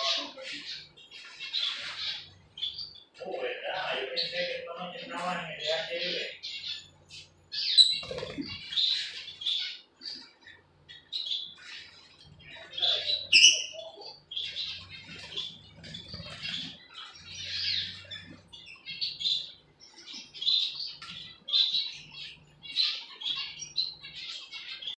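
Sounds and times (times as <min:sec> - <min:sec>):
lovebirds chirping: 0:00.0 - 0:25.0.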